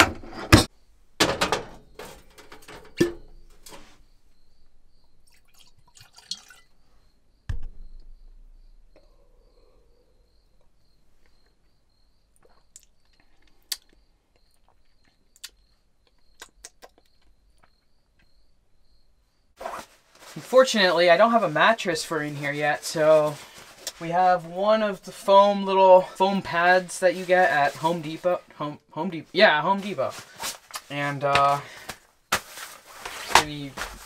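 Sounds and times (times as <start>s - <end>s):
liquid pouring into a mug: 5.3s - 6.7s
sipping from a mug: 5.3s - 6.7s
knock: 7.5s - 8.1s.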